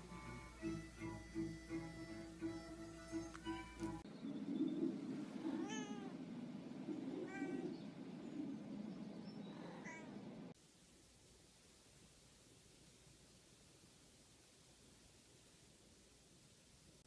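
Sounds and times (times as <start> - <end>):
cat meowing: 5.5 - 6.2, 7.2 - 7.7.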